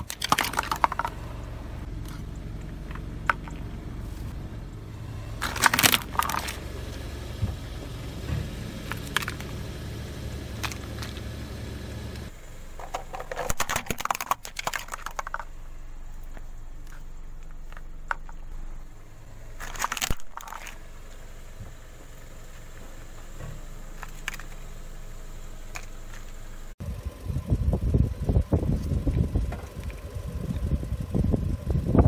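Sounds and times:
plastic toy crackling and crunching: 0.0s - 1.1s, 5.4s - 6.6s, 12.8s - 15.5s, 19.6s - 20.8s.

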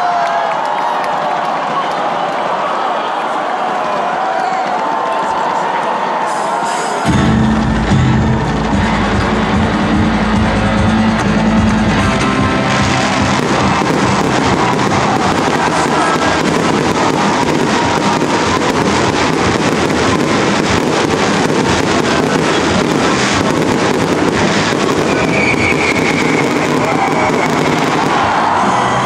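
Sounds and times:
music: 6.8s - 29.0s
fireworks cracking and popping: 12.6s - 28.6s.

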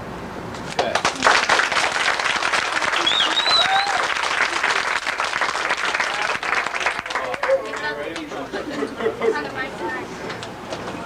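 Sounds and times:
audience applauding: 0.7s - 8.5s.

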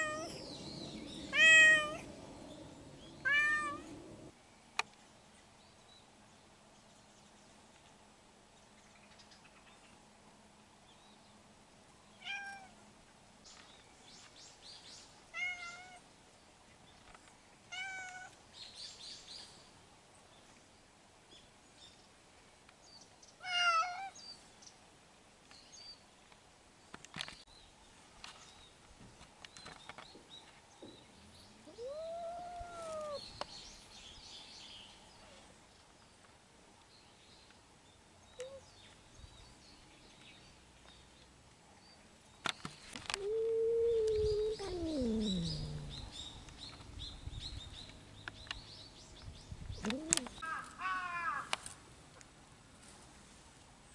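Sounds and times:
cat meowing: 0.0s - 0.3s, 1.3s - 2.1s, 3.2s - 4.0s, 12.2s - 12.7s, 15.4s - 16.0s, 17.7s - 18.3s, 23.4s - 24.1s, 31.7s - 33.2s, 43.1s - 46.1s.

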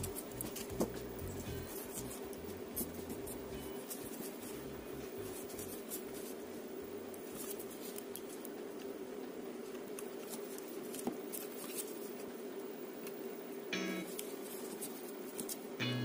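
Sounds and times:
steady hum: 0.0s - 16.0s
light clicks and rustles of wires: 7.1s - 9.0s, 9.6s - 12.4s, 14.1s - 15.7s.

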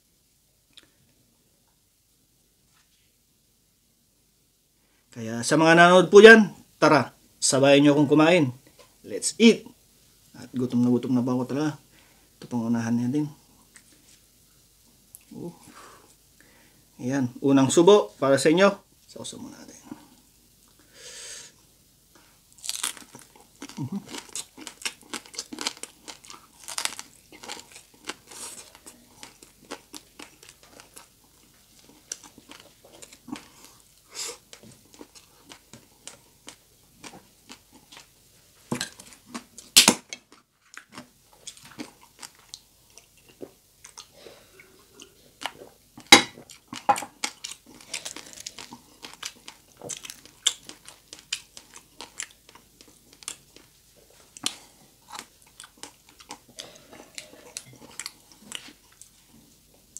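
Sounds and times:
crunching fried pork skin: 22.5s - 33.6s, 45.4s - 53.7s.

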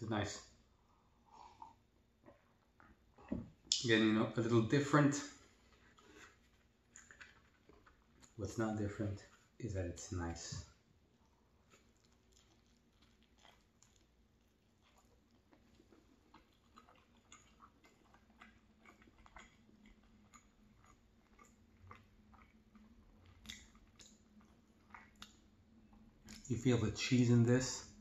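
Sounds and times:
chewing with wet mouth clicks: 5.4s - 8.4s, 11.2s - 26.6s.

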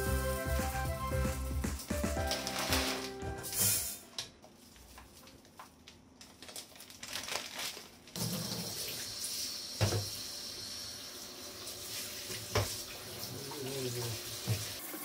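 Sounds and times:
tap water running into strainer: 8.2s - 15.0s.

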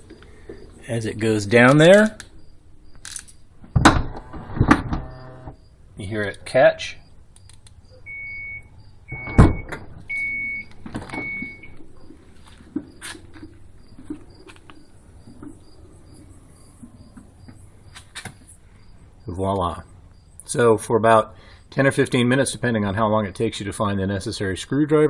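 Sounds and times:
heavy thunk: 3.8s - 5.0s
liftgate motor humming: 4.0s - 5.6s
small clicks: 7.3s - 7.8s.

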